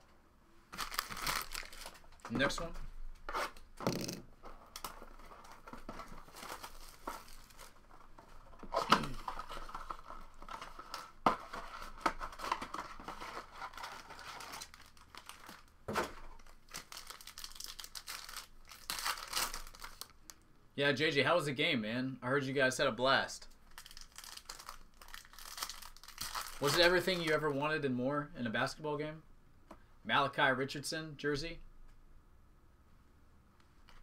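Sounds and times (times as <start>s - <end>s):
plastic wrap crinkling and tearing: 0.7s - 2.2s, 4.6s - 20.4s, 23.6s - 27.5s.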